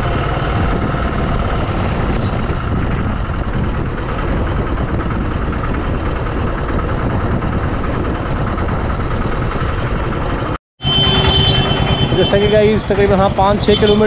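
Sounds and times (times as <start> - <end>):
auto-rickshaw engine running: 0.0 - 14.0
road noise: 0.0 - 14.0
wind: 0.0 - 14.0.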